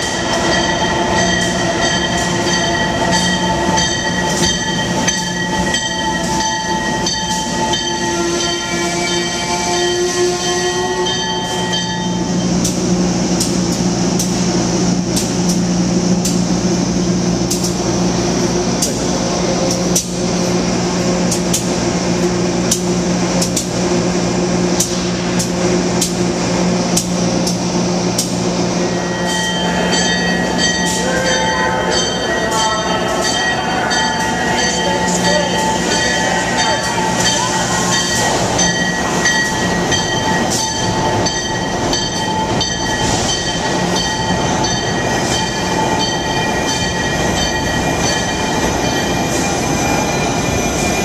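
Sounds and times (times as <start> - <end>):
electric locomotive whining: 0.0 - 51.0
train moving past humming: 0.0 - 51.0.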